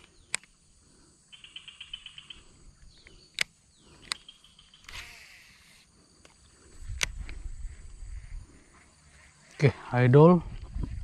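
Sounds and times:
sharp clicks: 0.0 - 0.6, 2.8 - 7.4
insects chirping: 0.0 - 11.0.

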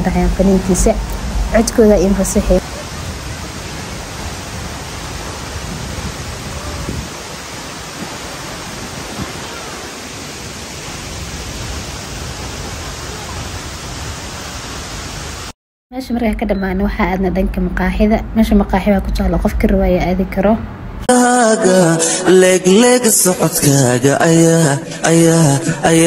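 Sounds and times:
waterfall rushing onto rocks: 2.6 - 15.6.

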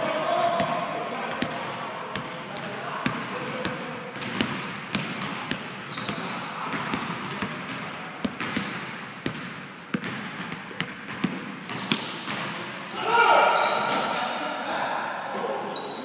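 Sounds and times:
basketball bouncing on hardwood floor: 3.0 - 12.5
sneaker squeaks: 5.8 - 16.0.

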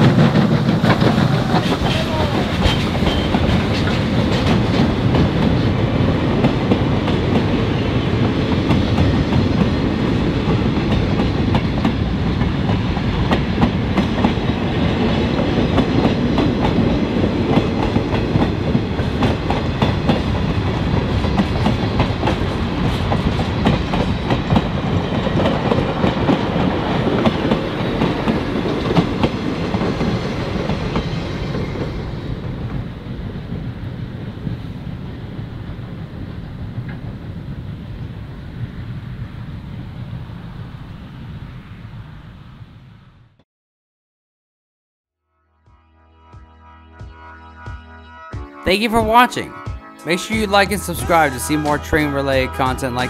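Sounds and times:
train wheels clattering over rail joints: 0.0 - 32.0.

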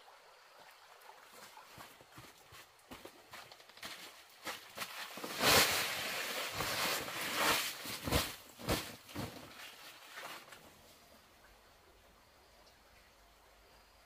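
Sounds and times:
sack thumping when shaken: 4.4 - 10.5
sand pouring from a sack: 4.7 - 10.5.

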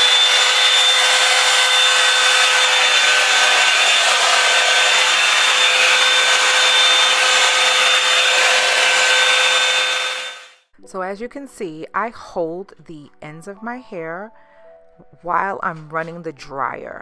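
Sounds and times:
hair dryer brush running: 0.0 - 10.6.

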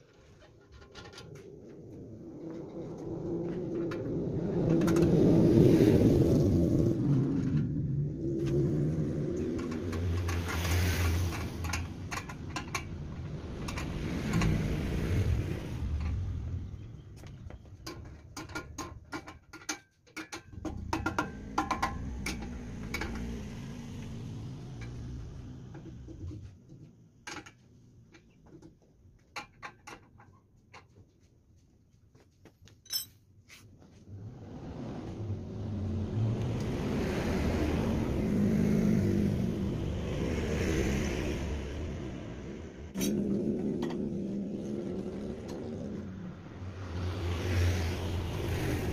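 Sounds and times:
motor vehicle rumble: 0.0 - 19.5, 20.4 - 29.2, 33.8 - 48.9
metal hand tools clinking: 32.8 - 33.2.

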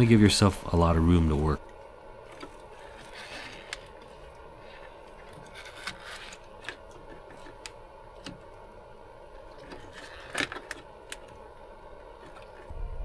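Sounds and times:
faint rustling of wiring: 1.3 - 8.6.

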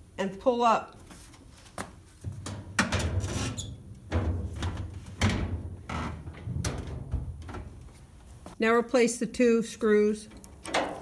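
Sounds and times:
metal panel clunking and rattling: 2.2 - 7.9.

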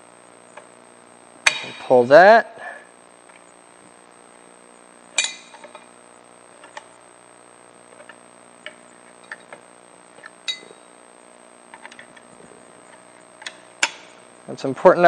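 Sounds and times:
ringing metal clink: 1.4 - 2.0, 5.2 - 5.8, 10.5 - 10.9
screwdriver clinking on metal: 5.2 - 5.8, 10.5 - 10.8.

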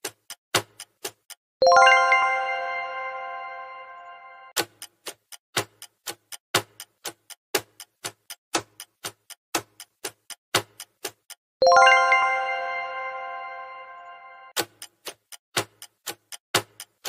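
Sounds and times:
clock ticking: 0.0 - 2.2, 4.5 - 12.2, 14.5 - 17.0
bright ringing chime: 11.6 - 14.5.

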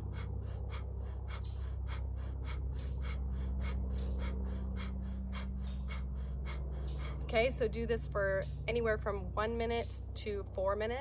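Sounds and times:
rhythmic forceful breathing: 0.0 - 8.4
low hum: 0.0 - 11.0.

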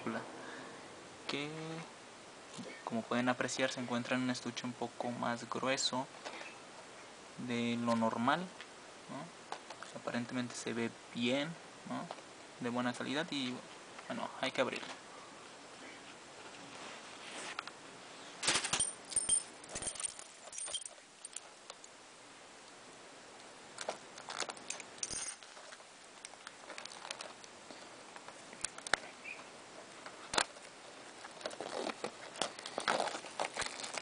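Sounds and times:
plastic clicks and crinkles: 23.8 - 29.1, 30.0 - 34.0
fingernails scratching shrink-wrap: 31.2 - 34.0.

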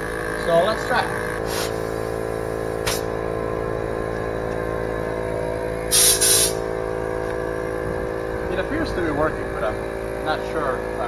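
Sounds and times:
air compressor motor hum: 0.0 - 11.0
air hissing from tire valve: 1.4 - 3.2, 5.3 - 6.9.

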